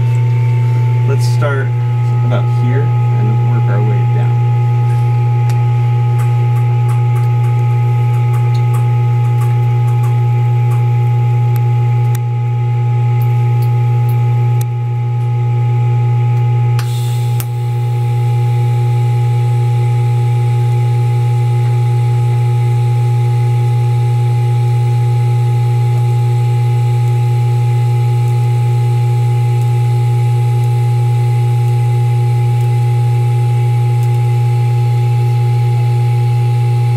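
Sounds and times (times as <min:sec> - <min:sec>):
steady higher tones: 0:00.0 - 0:12.2
welding arc crackle: 0:00.0 - 0:15.4, 0:16.3 - 0:36.9
low electrical hum: 0:00.0 - 0:36.9.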